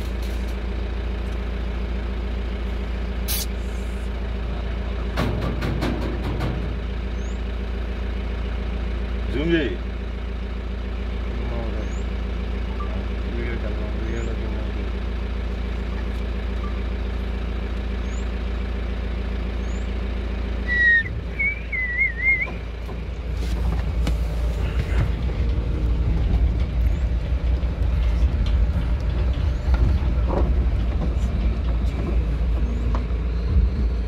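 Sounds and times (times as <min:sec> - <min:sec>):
vehicle engine idling: 0:00.0 - 0:34.0
wavering high squeal: 0:20.6 - 0:22.6.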